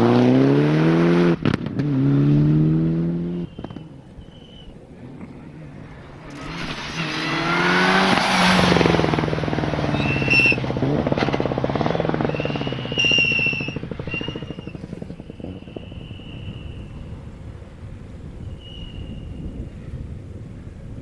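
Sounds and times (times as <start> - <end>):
rally car engine revving: 0.0 - 17.3
sharp exhaust cracks: 3.4 - 20.1.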